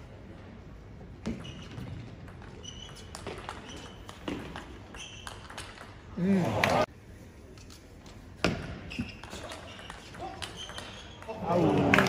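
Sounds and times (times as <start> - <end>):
shoes squeaking on floor: 1.2 - 5.7, 8.8 - 11.4.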